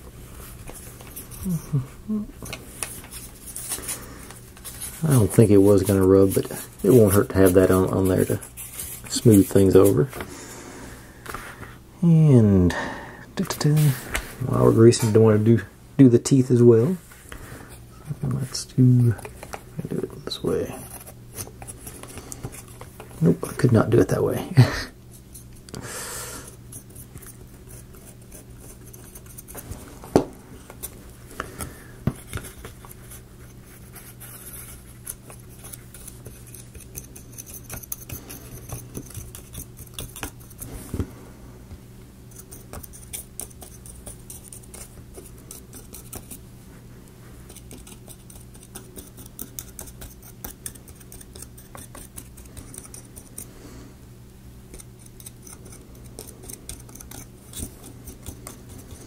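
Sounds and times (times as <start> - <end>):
applicator scratching wooden gear: 32.2 - 40.7, 47.5 - 53.5, 54.7 - 59.0.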